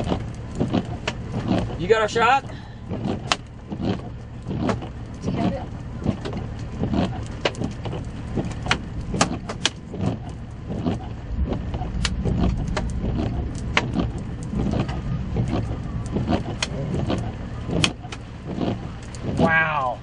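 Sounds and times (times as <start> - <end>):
storm wind buffeting: 7.3 - 20.0.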